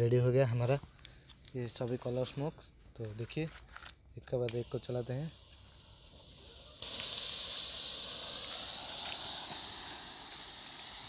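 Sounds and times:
smoke fireworks hissing: 0:04.3 - 0:11.0.

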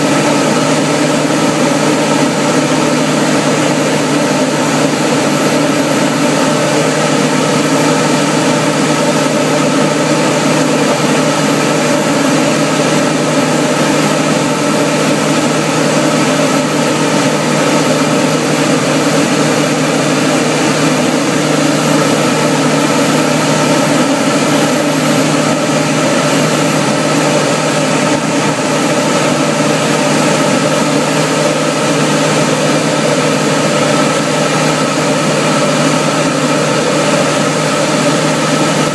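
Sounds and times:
propeller aircraft engine drone: 0:00.0 - 0:38.9.

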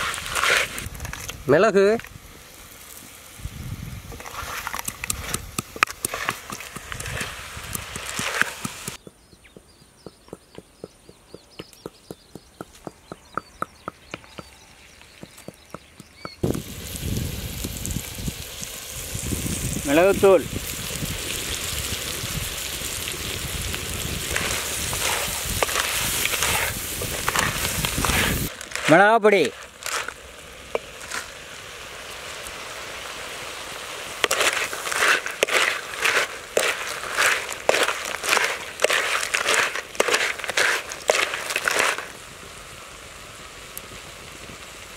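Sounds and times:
wooden spatula scraping clay pot: 0:00.0 - 0:01.3, 0:04.2 - 0:09.0, 0:24.3 - 0:31.3, 0:34.2 - 0:42.2
curry sizzling in a clay pot: 0:00.0 - 0:44.9
stone pestle tapping in mortar: 0:08.1 - 0:14.5
faint birds chirping: 0:08.9 - 0:16.4.

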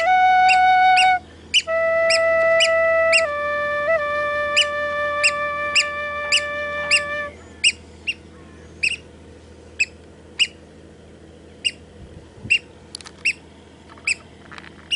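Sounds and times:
high piping bird calls: 0:00.0 - 0:03.3, 0:04.5 - 0:10.7, 0:11.6 - 0:14.3
held flute-like music chord: 0:00.0 - 0:09.0.

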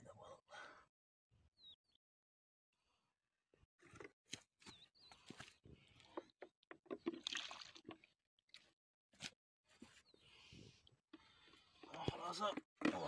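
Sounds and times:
splashing in muddy puddle: 0:07.0 - 0:08.1.

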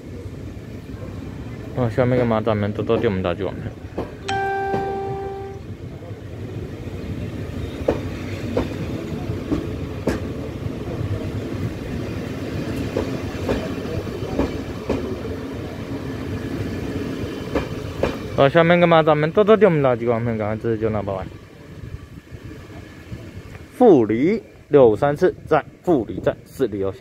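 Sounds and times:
train coaches rumbling past: 0:00.0 - 0:27.0
horn-like tone: 0:04.3 - 0:05.7
wheels clacking over rail joints: 0:07.8 - 0:10.6, 0:17.4 - 0:18.4.

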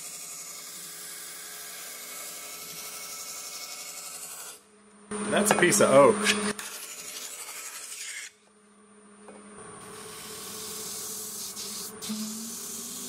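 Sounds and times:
faint motor hum: 0:00.0 - 0:13.0
wood grinding on sanding disc: 0:09.8 - 0:13.0
cleaning stick hissing on sanding disc: 0:09.9 - 0:13.0.

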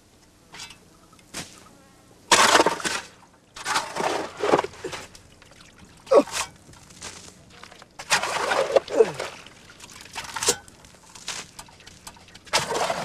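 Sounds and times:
digging in dry sand and soil: 0:06.1 - 0:13.0.

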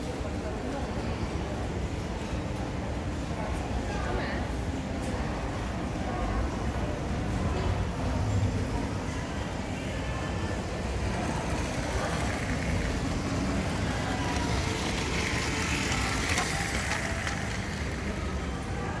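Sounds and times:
busy indoor hall ambience: 0:00.0 - 0:19.0
indistinct voices: 0:09.1 - 0:19.0.

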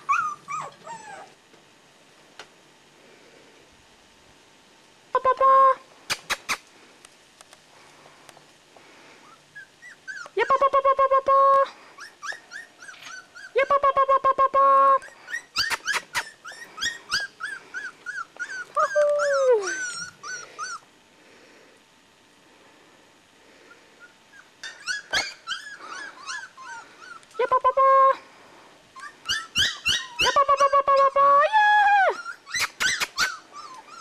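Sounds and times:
puppy crying and yelping: 0:00.0 - 0:01.4, 0:09.2 - 0:10.6, 0:12.0 - 0:13.8, 0:14.9 - 0:20.9, 0:24.0 - 0:27.7, 0:28.9 - 0:34.0
puppy whining: 0:00.0 - 0:01.4, 0:09.2 - 0:10.7, 0:12.0 - 0:13.8, 0:14.9 - 0:20.9, 0:23.7 - 0:27.7, 0:29.0 - 0:34.0.

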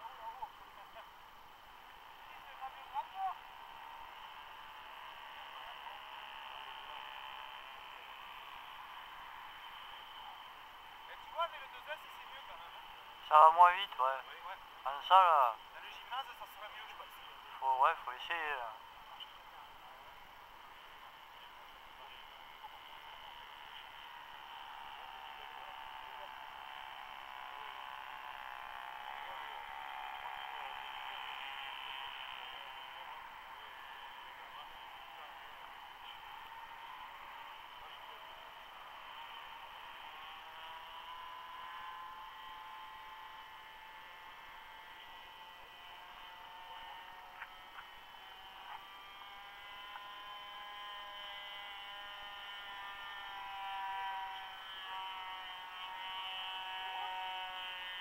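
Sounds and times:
model airplane engine whining: 0:20.7 - 0:58.0.

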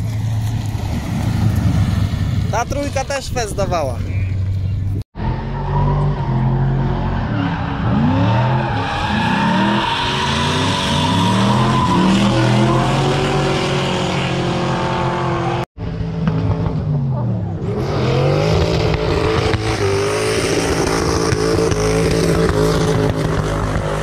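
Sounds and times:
car engines revving hard: 0:05.2 - 0:24.0.

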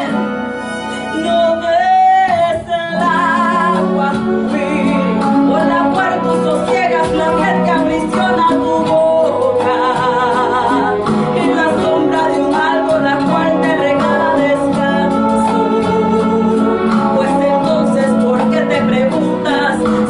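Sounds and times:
backing music: 0:00.0 - 0:20.0
woman singing: 0:00.0 - 0:20.0.

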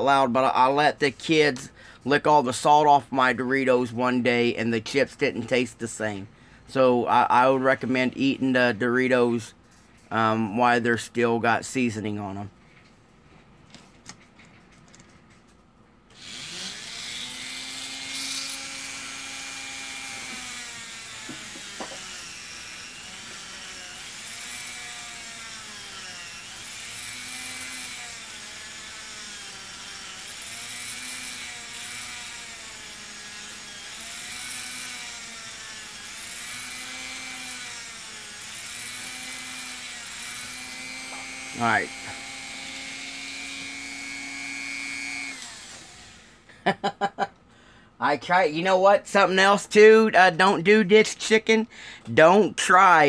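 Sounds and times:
rotary tool cutting plastic: 0:16.1 - 0:46.4.

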